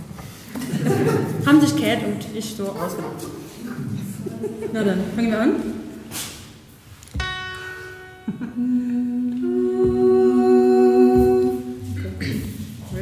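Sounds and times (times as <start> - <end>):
women humming held notes: 8.2 - 12.9.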